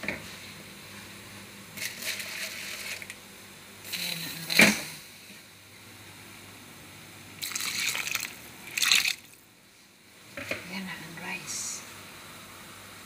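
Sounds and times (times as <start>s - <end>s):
rice stirred in a pot: 1.8s - 3.1s.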